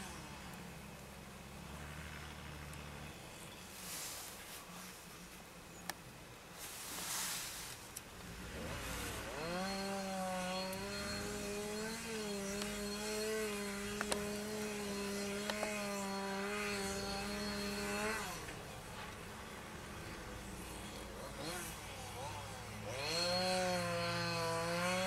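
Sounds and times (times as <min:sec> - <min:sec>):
chainsaw cutting ice: 0:00.0 - 0:00.7, 0:08.3 - 0:19.1, 0:19.7 - 0:25.0.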